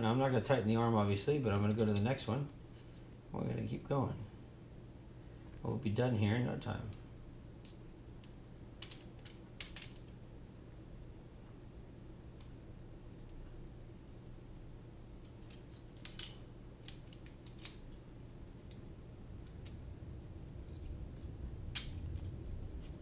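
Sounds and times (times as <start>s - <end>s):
steady low hum: 0.0s - 23.0s
clicks of plastic parts handled: 15.2s - 18.0s.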